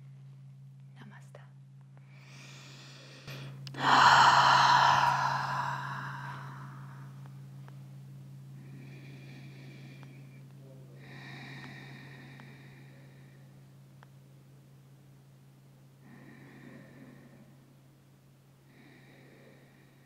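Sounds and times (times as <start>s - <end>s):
person breathing: 2.1s - 7.3s, 8.6s - 10.4s, 11.0s - 13.7s, 16.0s - 17.7s, 18.7s - 20.0s.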